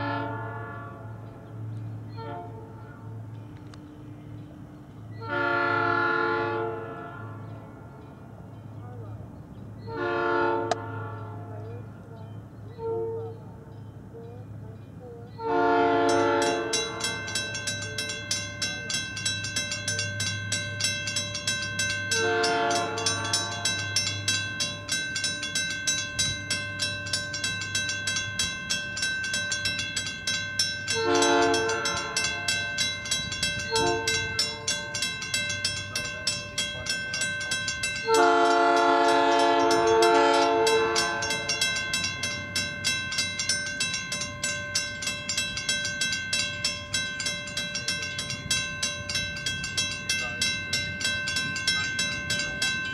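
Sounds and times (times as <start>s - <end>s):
train horn blasts: 0.0s - 1.4s, 2.1s - 3.0s, 5.2s - 7.8s, 9.9s - 11.7s, 12.7s - 13.5s, 15.4s - 17.2s, 22.1s - 23.9s, 30.9s - 32.7s, 33.6s - 34.7s, 38.0s - 41.6s
crossing bell ringing: 0.0s - 52.9s.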